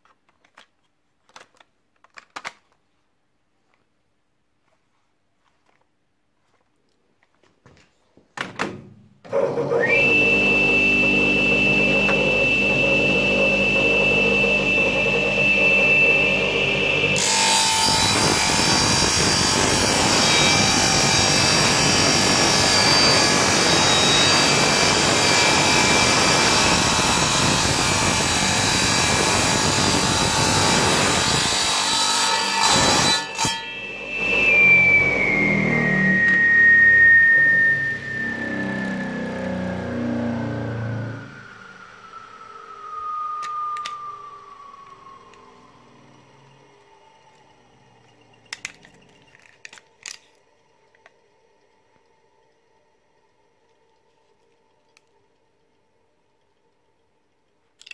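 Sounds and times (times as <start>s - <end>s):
saw blade cutting plastic and metal: 9.3s - 41.6s
tile saw motor whining: 9.3s - 50.3s.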